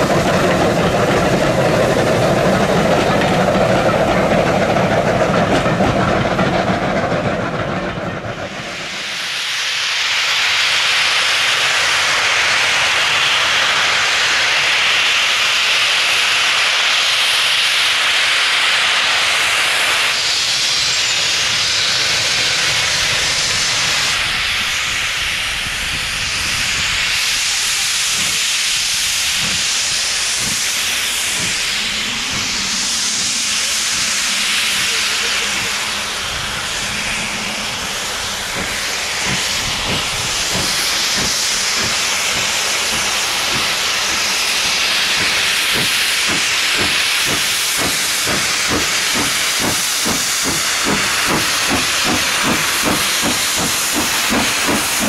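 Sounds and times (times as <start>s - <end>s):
low rumbles of locomotive: 0.0s - 55.0s
steam hissing: 0.0s - 55.0s.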